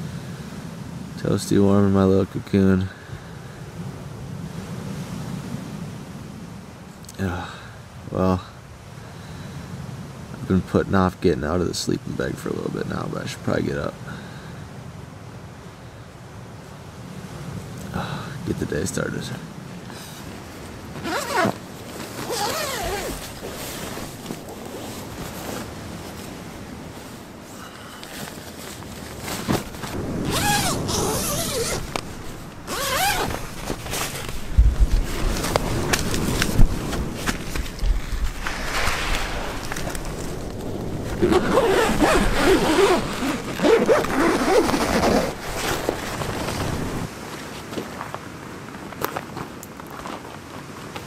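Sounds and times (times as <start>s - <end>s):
faint rustling: 19.9s - 47.1s
zipper being pulled open: 21.0s - 24.4s, 29.2s - 34.5s, 41.0s - 47.1s.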